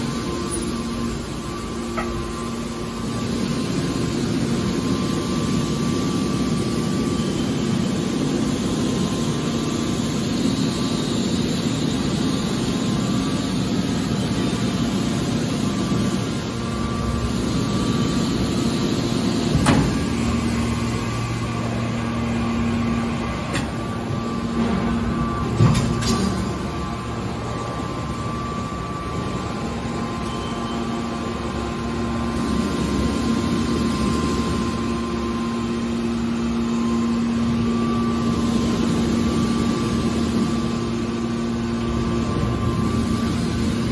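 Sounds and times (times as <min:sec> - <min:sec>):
baler machine hum and whine: 0:00.0 - 0:43.9
metallic clunks: 0:01.9 - 0:02.2.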